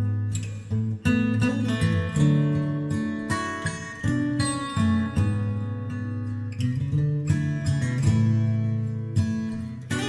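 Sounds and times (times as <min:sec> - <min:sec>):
acoustic guitar music: 0:00.0 - 0:10.0.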